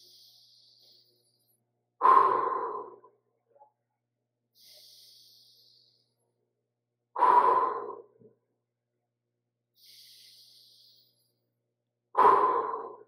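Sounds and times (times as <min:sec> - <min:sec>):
hissing inhale: 0:02.0 - 0:03.1, 0:04.6 - 0:06.2, 0:07.2 - 0:08.1, 0:09.8 - 0:11.2, 0:12.2 - 0:13.0.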